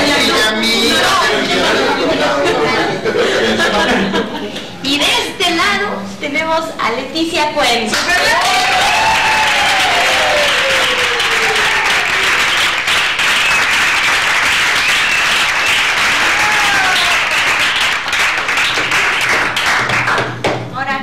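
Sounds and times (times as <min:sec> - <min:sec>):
people applauding: 0:07.9 - 0:20.6.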